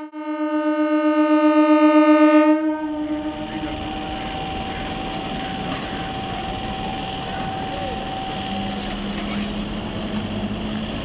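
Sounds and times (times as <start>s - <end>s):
train horn: 0.0s - 5.5s
electric train whine and rumble: 0.0s - 11.0s.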